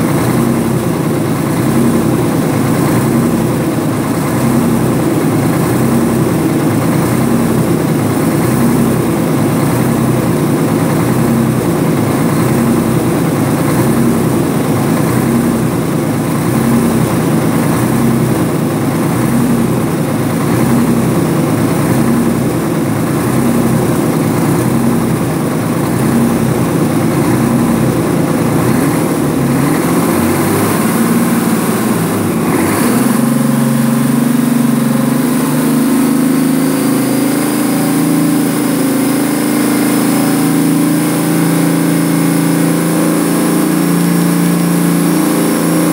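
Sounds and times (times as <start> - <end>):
diesel engine idling: 0.0 - 45.9.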